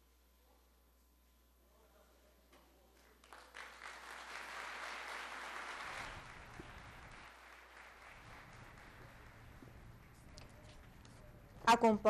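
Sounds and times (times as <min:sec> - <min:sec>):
audience applauding: 0:03.0 - 0:10.3.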